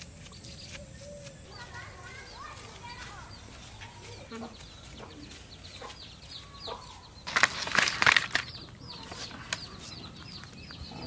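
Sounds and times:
chickens clucking: 3.4s - 11.0s
fish thrashing and slapping on leaf: 7.3s - 8.6s.

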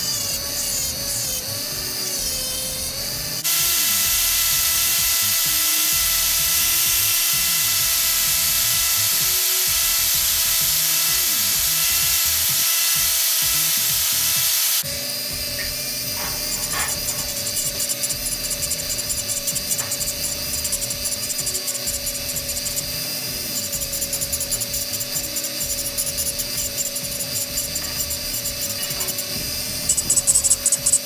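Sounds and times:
angle grinder whining: 0.0s - 31.0s
rotary tool grinding metal: 0.0s - 31.0s.

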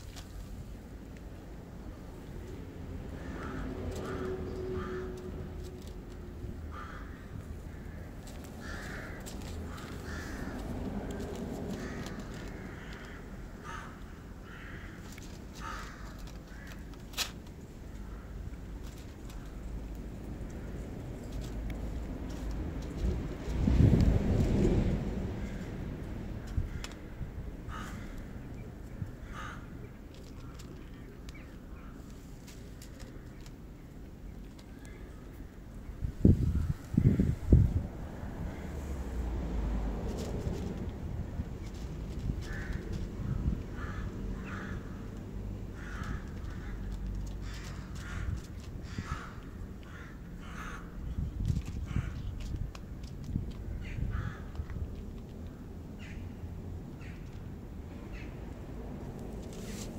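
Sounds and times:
low outdoor rumble: 0.0s - 59.9s
crows cawing: 3.2s - 5.8s, 6.7s - 17.0s, 17.9s - 19.5s, 26.4s - 28.4s, 29.0s - 30.8s, 42.2s - 51.1s, 51.9s - 52.2s, 53.7s - 54.7s
cat crunching dry kibble: 7.4s - 13.6s, 14.9s - 24.9s, 30.0s - 34.9s, 40.0s - 43.8s, 45.2s - 49.9s, 51.3s - 53.7s, 54.3s - 55.9s.

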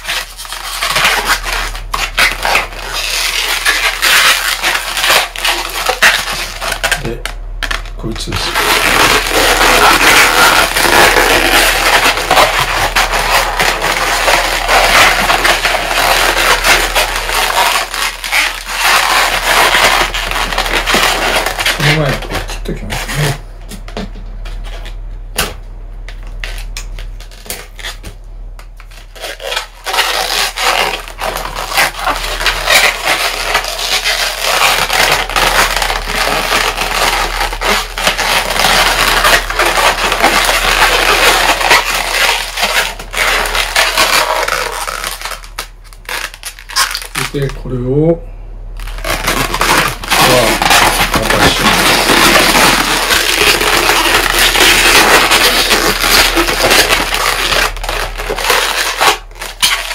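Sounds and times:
balloons rubbing and squeaking: 0.0s - 25.1s, 26.4s - 28.1s, 28.8s - 59.9s.

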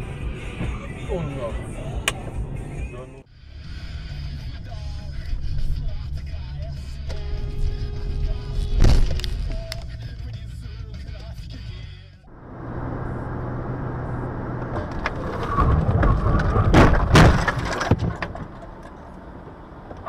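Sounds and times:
car engine and road noise: 0.0s - 20.0s
loud crash bangs with crunching: 14.7s - 18.8s.

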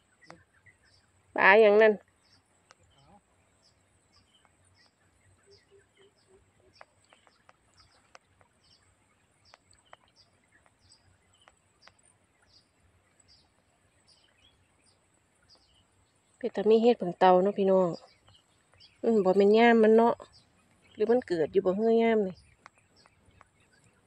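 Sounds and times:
bird chirping: 0.0s - 24.0s
faint clicks: 2.6s - 2.9s, 6.7s - 8.8s, 9.4s - 13.7s, 22.4s - 24.0s.

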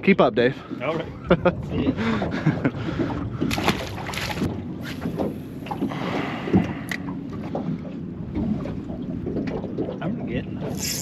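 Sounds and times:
water lapping against boat hull: 0.0s - 11.0s.

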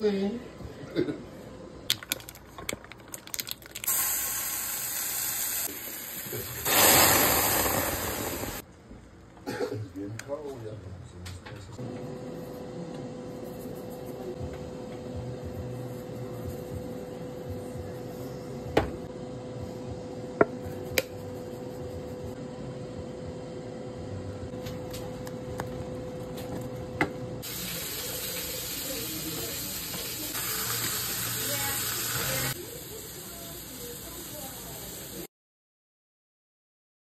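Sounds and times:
loud steady hiss: 3.9s - 8.6s, 27.4s - 35.3s.

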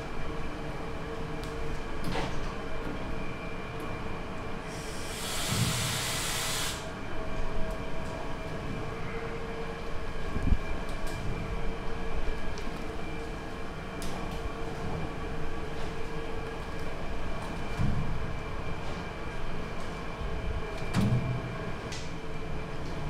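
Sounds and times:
kitchen machinery humming: 0.0s - 10.6s
steam hissing: 4.7s - 7.0s.

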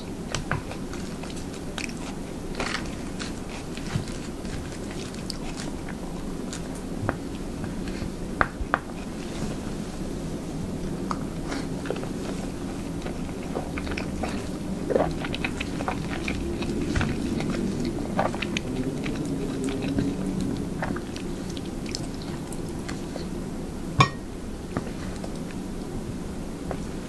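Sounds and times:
person chewing: 0.2s - 8.2s, 11.0s - 23.4s.

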